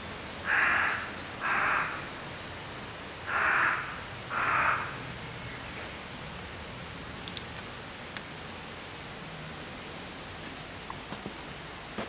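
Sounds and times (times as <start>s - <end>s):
steady hiss: 0.0s - 12.0s
crow cawing: 0.5s - 2.1s, 3.3s - 5.0s.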